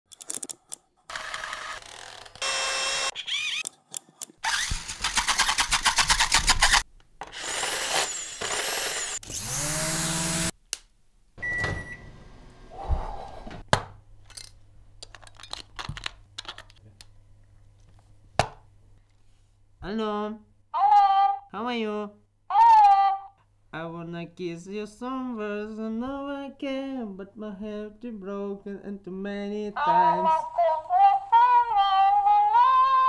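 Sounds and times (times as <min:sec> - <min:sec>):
plastic toys clicking and knocking: 0:00.1 - 0:00.9, 0:14.2 - 0:16.8
toy motors buzzing and whining: 0:01.1 - 0:03.7, 0:04.4 - 0:10.5.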